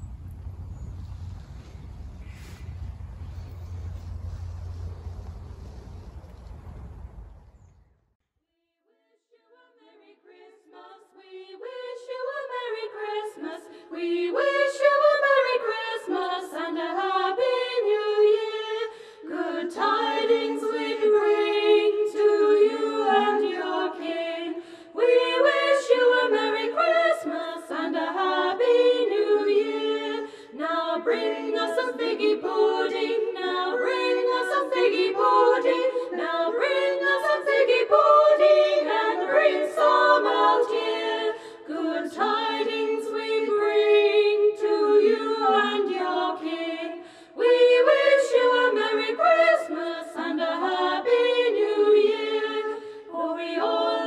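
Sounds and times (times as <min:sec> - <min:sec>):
singers breathing: 0:00.9 - 0:06.4, 0:18.9 - 0:19.3, 0:24.6 - 0:25.0, 0:30.2 - 0:30.6, 0:41.3 - 0:41.7, 0:47.0 - 0:47.4, 0:52.7 - 0:53.1
a cappella choir singing: 0:09.3 - 0:54.0.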